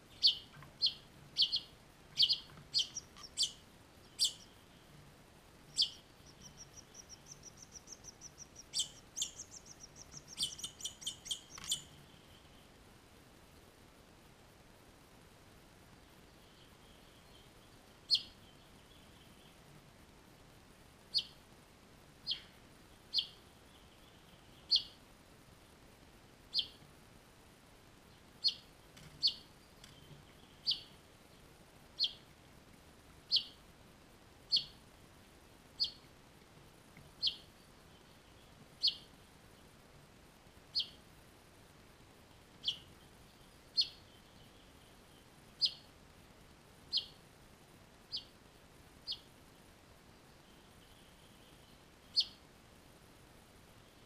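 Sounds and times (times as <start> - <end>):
finch chirping: 0.1 - 4.7, 5.6 - 12.0, 18.1 - 19.5, 21.1 - 21.4, 22.2 - 22.5, 23.1 - 25.0, 26.5 - 26.8, 28.4 - 28.6, 29.2 - 31.0, 32.0 - 32.2, 33.3 - 33.6, 34.5 - 34.8, 35.8 - 36.0, 37.2 - 39.1, 40.7 - 41.0, 42.6 - 43.1, 43.7 - 44.8, 45.6 - 45.9, 46.9 - 47.2, 48.1 - 48.3, 49.1 - 49.3, 50.8 - 52.4.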